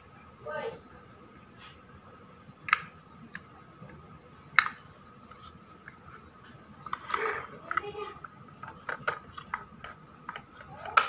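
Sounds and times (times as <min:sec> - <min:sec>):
faint high hum: 0:00.0 - 0:11.0
plastic parts clicking together: 0:06.8 - 0:11.0.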